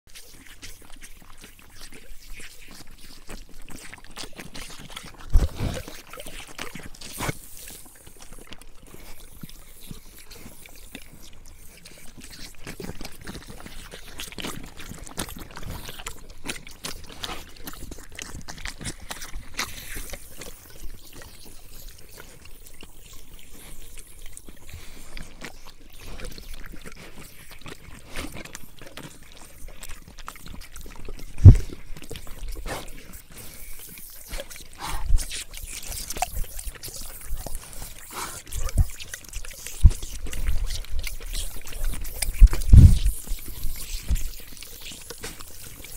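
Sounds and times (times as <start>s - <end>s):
dogs lapping water: 0.1s - 45.9s
water trickling from hose: 0.1s - 45.9s.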